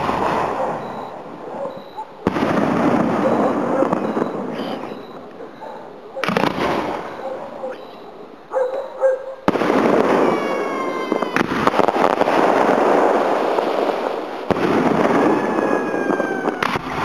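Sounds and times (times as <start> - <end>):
firework shells bursting: 6.2 - 7.2.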